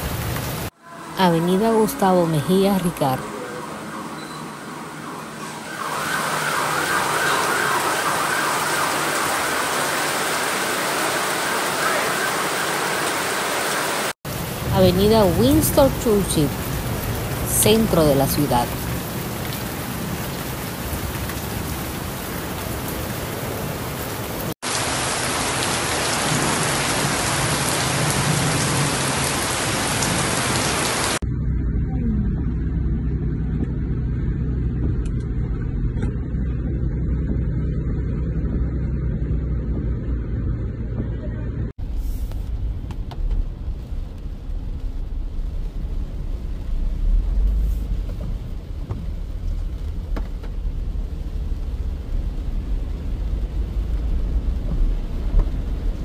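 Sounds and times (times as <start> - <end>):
heavy rain on car roof: 0.0 - 0.8, 5.9 - 31.2, 41.8 - 56.0
car driving through flood water: 5.8 - 13.9.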